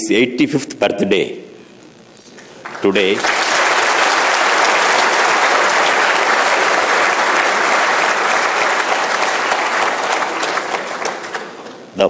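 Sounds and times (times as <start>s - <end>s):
large audience applauding: 2.5s - 11.9s.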